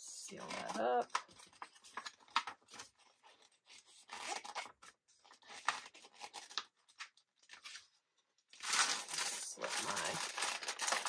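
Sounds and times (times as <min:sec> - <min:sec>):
photo paper rustling and rubbing: 0:00.2 - 0:08.0, 0:08.6 - 0:11.0
paper scraping: 0:08.6 - 0:11.0.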